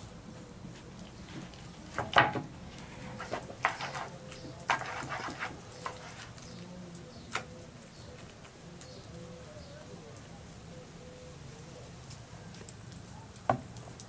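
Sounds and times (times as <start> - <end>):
wooden spoon scraping mash: 1.0 - 7.5.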